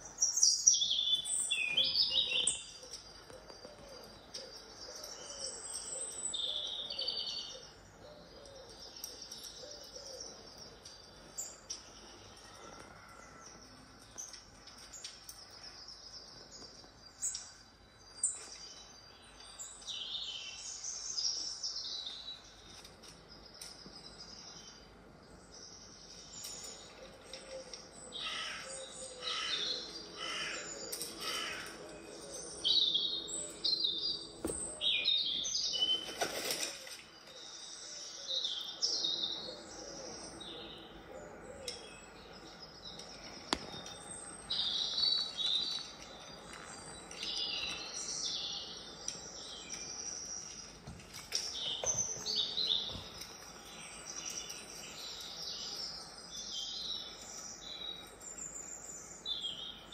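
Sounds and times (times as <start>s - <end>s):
recorded bird chirps and trills: 0.0s - 59.9s.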